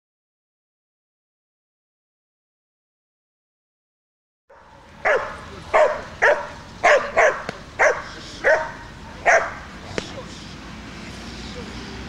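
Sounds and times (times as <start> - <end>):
dog barking: 4.5 - 9.7.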